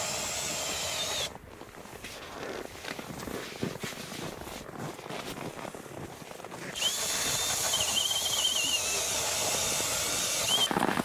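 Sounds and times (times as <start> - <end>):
ice auger boring through ice: 0.0 - 1.3, 6.6 - 11.0.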